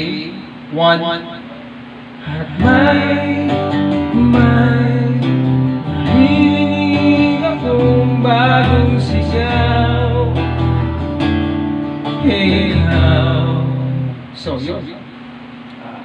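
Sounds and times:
man singing with delay effect: 2.2 - 10.9, 12.1 - 14.4
strummed electric guitar: 2.2 - 14.9.

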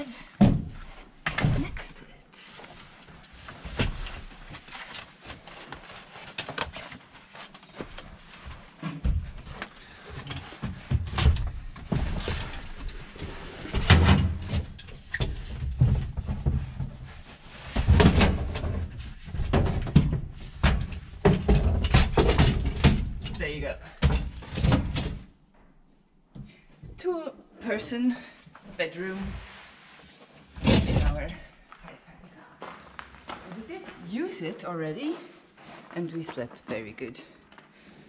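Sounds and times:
metal frame clicking and clanking: 17.9 - 23.4.

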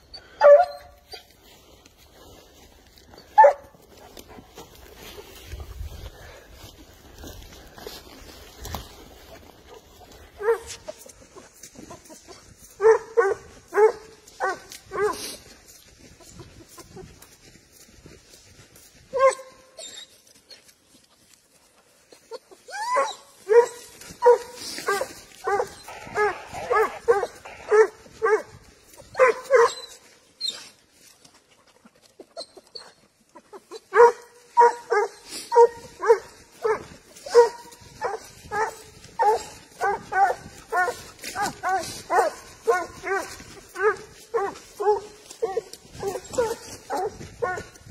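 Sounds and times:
hound barking: 0.2 - 1.3, 3.2 - 4.4, 9.7 - 11.4, 12.6 - 15.4, 19.1 - 19.9, 22.7 - 30.1, 33.7 - 47.9.

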